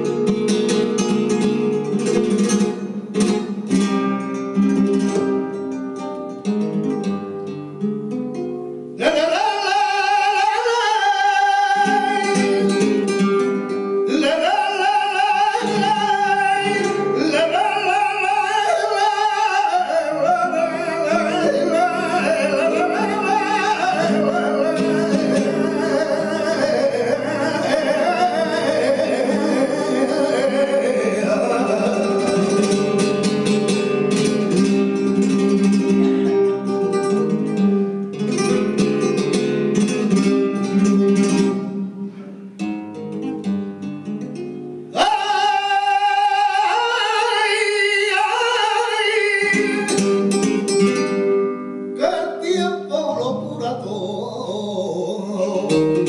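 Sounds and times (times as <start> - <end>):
man singing flamenco: 0.0 - 5.6, 9.0 - 56.0
acoustic guitar strumming: 0.0 - 56.0.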